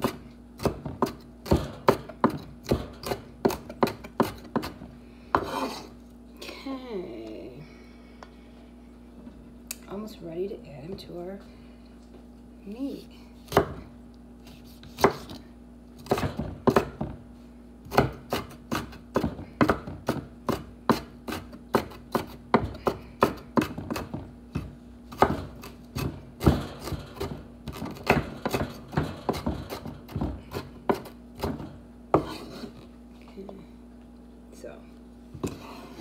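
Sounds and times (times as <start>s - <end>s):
knife chopping on wooden board: 0.0s - 5.8s, 13.5s - 13.8s, 14.5s - 15.4s, 16.0s - 17.1s, 17.9s - 32.7s.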